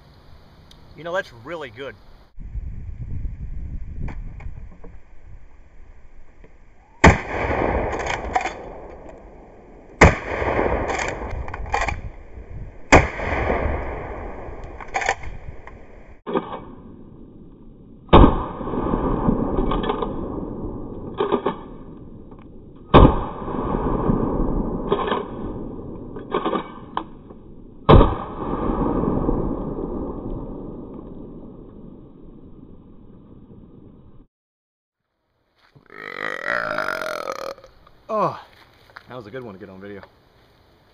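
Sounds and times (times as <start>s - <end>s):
shotgun shots booming: 7.0s - 12.1s, 12.9s - 15.6s, 18.0s - 22.2s, 22.8s - 31.6s.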